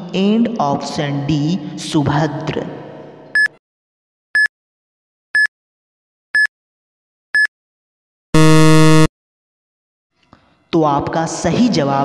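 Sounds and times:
low buzzer tone: 8.4 - 9.1
short high beeps: 8.4 - 9.1.

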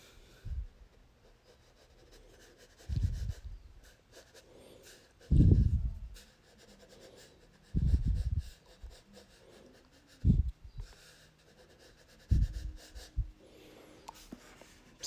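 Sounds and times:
crayon scratching on paper: 1.2 - 13.3.

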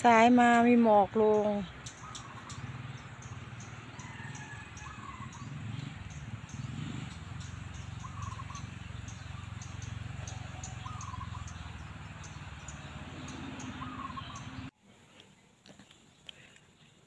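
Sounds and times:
light high ticking: 1.3 - 13.8
faint wavering calls: 1.3 - 14.7.

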